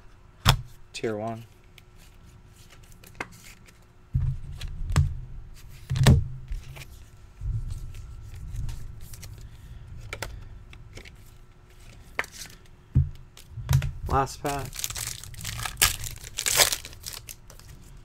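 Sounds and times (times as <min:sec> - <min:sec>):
low rumble: 0:07.3 - 0:10.9.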